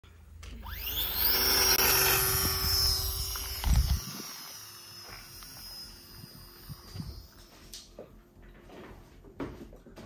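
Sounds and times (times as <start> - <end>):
model plane motor whine: 0.5 - 7.6.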